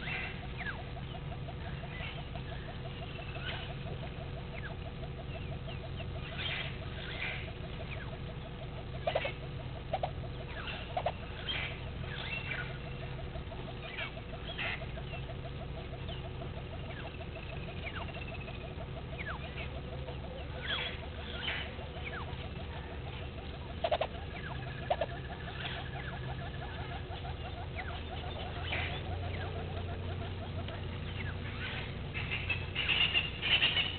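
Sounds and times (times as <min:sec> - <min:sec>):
birds chirping and trilling: 0:00.0 - 0:33.9
fast ticking chorus: 0:00.0 - 0:33.9
sharp loud bird calls: 0:00.0 - 0:33.9.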